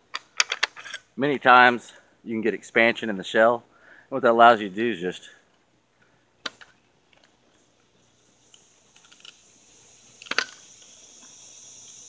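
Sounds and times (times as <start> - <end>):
steady high hiss: 0.0 - 12.0.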